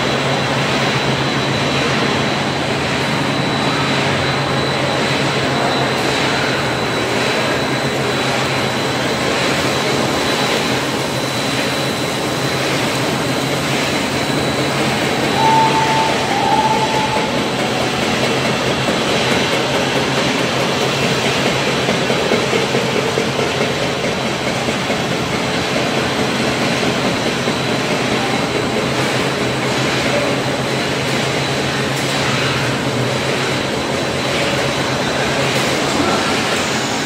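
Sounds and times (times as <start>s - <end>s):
production line machinery running: 0.0s - 37.0s
faint high whine: 10.0s - 18.4s.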